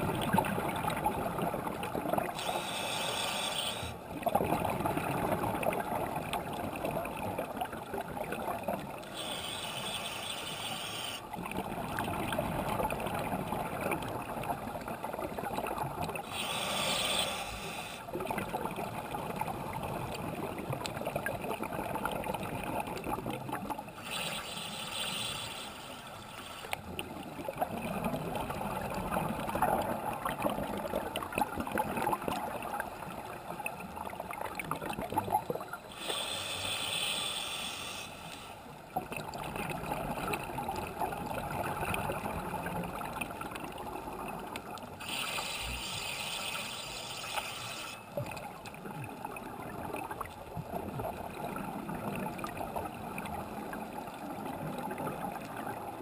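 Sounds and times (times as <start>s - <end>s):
underwater bubbles rushing: 0.0s - 2.4s, 4.1s - 9.0s, 18.1s - 23.9s, 26.9s - 35.8s, 38.9s - 44.9s, 48.2s - 56.0s
regulator breathing hiss: 2.4s - 4.0s, 9.1s - 11.2s, 16.3s - 18.0s, 24.0s - 26.8s, 35.9s - 38.6s, 45.0s - 48.0s.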